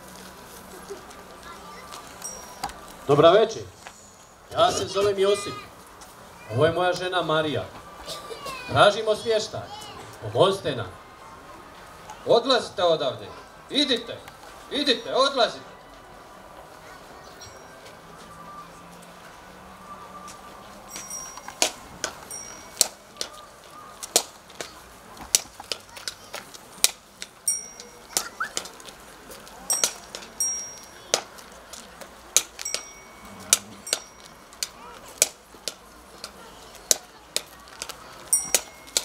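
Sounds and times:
hooves clip-clopping on asphalt: 0.0 - 8.1, 20.2 - 39.0
high metallic rings: 2.2 - 2.8, 20.9 - 23.2, 27.4 - 28.4, 29.7 - 31.1, 32.6 - 34.6, 38.3 - 39.0.

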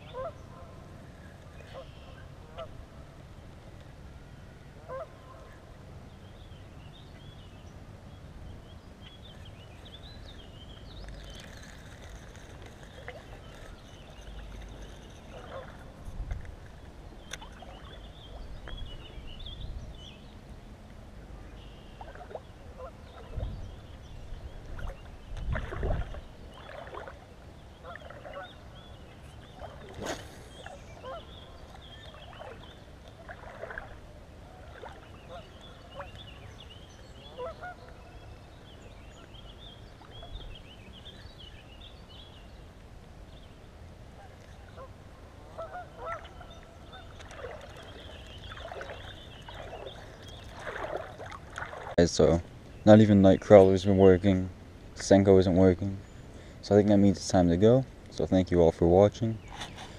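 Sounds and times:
birds chirping: 4.9 - 20.7, 21.3 - 59.9
wind buffeting microphone: 23.3 - 26.8.

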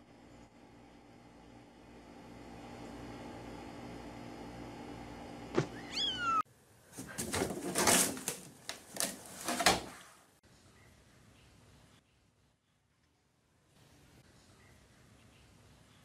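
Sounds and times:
kitten meowing: 5.6 - 6.4
cat scrambling in hamper: 6.9 - 10.1.

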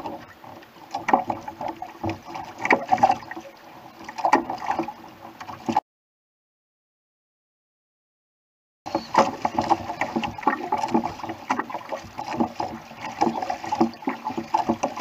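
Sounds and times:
water slapping against kayak hull: 0.0 - 5.8, 8.9 - 15.0.

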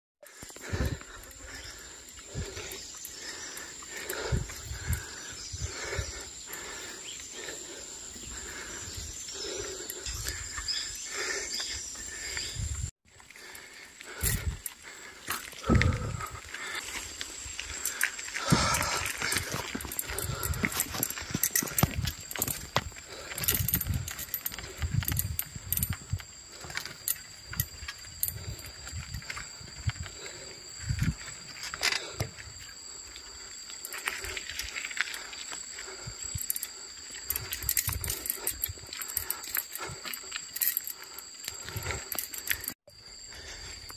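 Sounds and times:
bike tyre and drivetrain noise: 0.3 - 43.9
wind on microphone: 15.6 - 16.4, 20.0 - 26.3.

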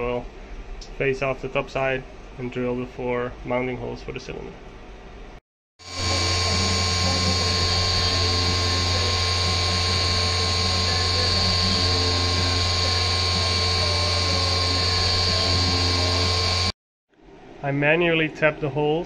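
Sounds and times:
hiss of cutting: 5.8 - 16.7
milling machine spindle whine: 5.8 - 16.7.

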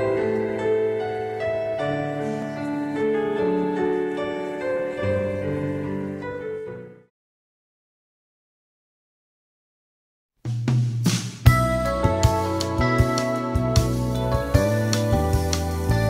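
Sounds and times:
slow piano-like chords: 0.0 - 7.1, 11.5 - 16.0.

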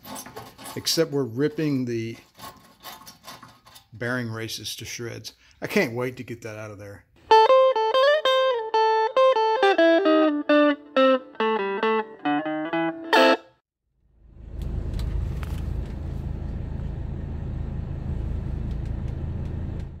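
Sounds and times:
electric guitar plucked notes: 7.3 - 13.6.

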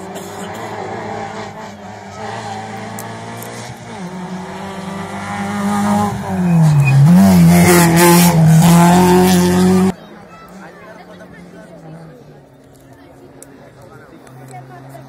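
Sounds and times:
rally car engine passing by: 0.0 - 10.0.

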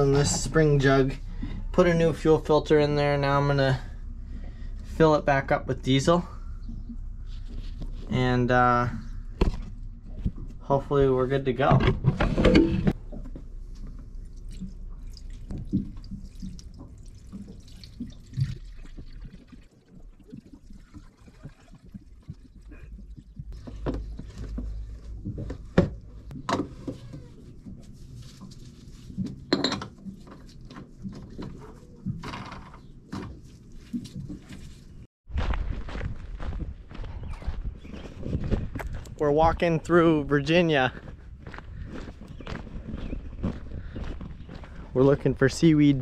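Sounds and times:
fuel trickling into filter housing: 13.6 - 23.4.

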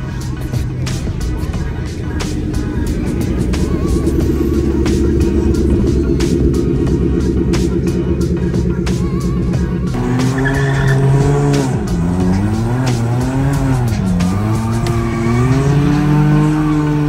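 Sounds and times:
car engine revving: 0.0 - 17.0
tyre squeal: 10.0 - 11.4.

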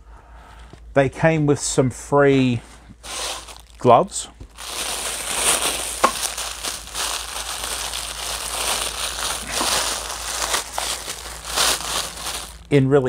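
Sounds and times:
plastic packaging crinkling: 3.0 - 12.7.

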